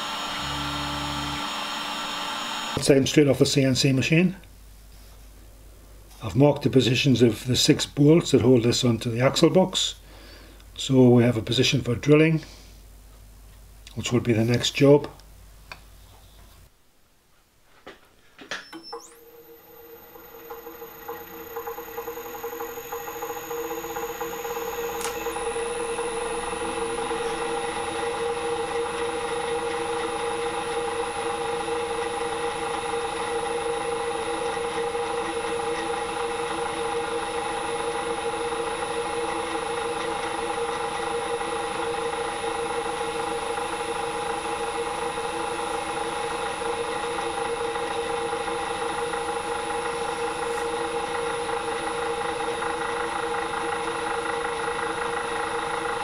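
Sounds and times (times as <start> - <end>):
drill bit drilling cast iron: 0.0 - 2.8, 18.8 - 56.0
drill press motor running: 0.0 - 2.8, 18.8 - 56.0.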